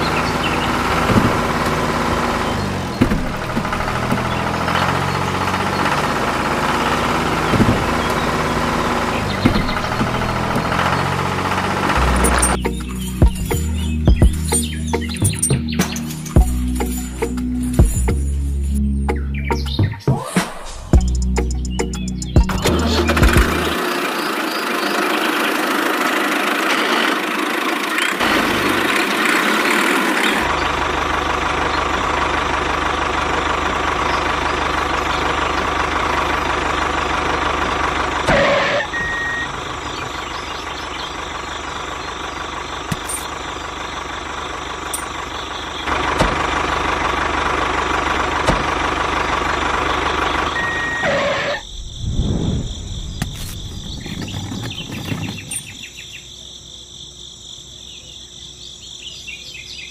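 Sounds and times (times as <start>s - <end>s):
motor running: 22.4s - 51.6s.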